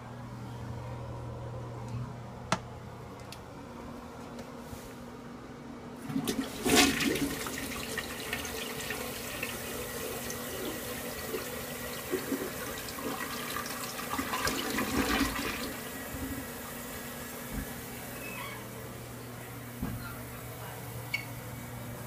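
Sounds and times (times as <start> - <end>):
toilet flushing: 6.0 - 18.2.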